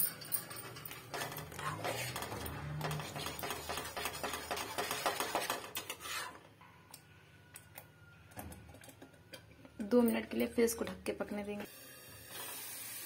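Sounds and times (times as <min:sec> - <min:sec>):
spatula scraping metal pot: 0:01.1 - 0:06.6.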